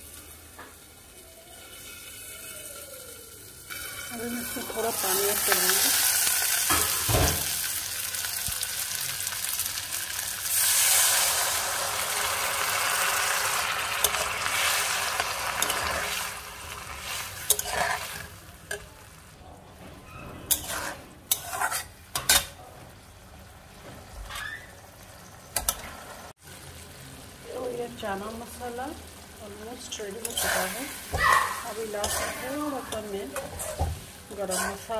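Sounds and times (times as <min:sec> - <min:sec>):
food sizzling in a pan: 0:00.0 - 0:19.4, 0:20.5 - 0:34.9
steel spatula scraping a pan: 0:12.3 - 0:18.9, 0:20.0 - 0:22.6, 0:30.2 - 0:34.9.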